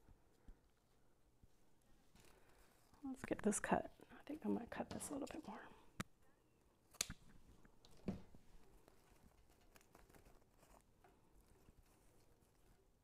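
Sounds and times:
rustling of artificial greenery: 6.8 - 13.0.

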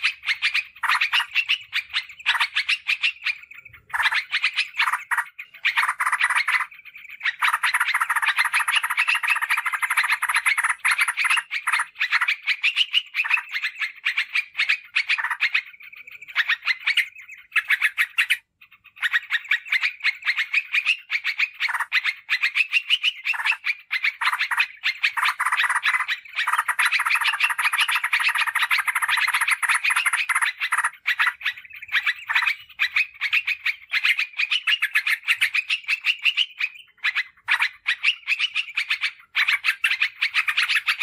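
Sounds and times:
bird chattering trills: 0.0 - 41.0.

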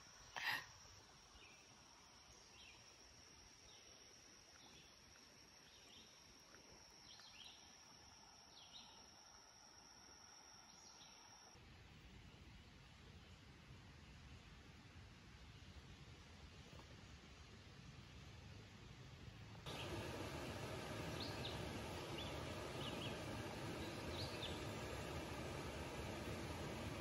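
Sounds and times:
high-pitched insect drone: 0.0 - 11.6.

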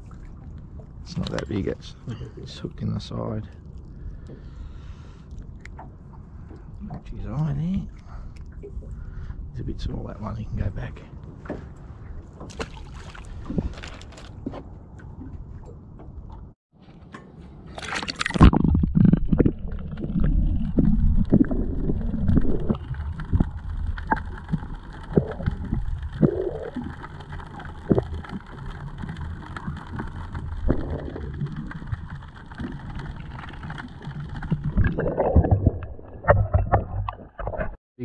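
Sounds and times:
splash into water: 12.4 - 14.0, 17.7 - 18.8
underwater gurgling: 17.9 - 37.8.

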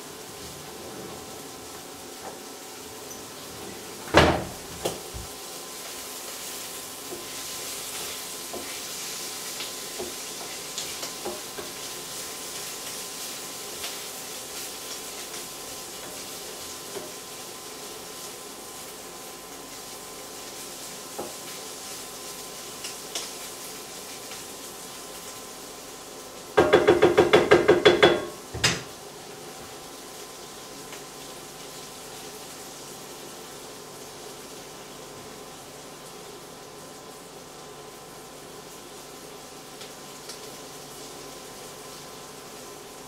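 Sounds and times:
beans sizzling in a frying pan: 0.0 - 43.0
spatula tapping a pan: 10.0 - 11.8, 26.6 - 28.9.

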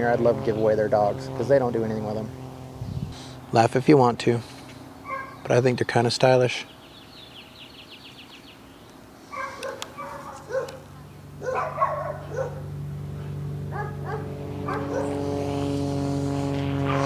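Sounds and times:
dogs barking: 5.0 - 5.5, 9.3 - 15.2.

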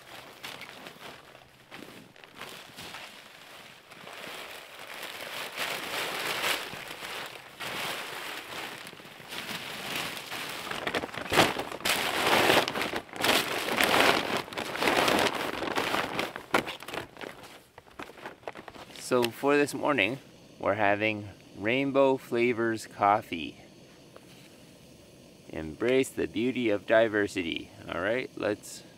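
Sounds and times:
rustling and crackling: 0.0 - 20.1.

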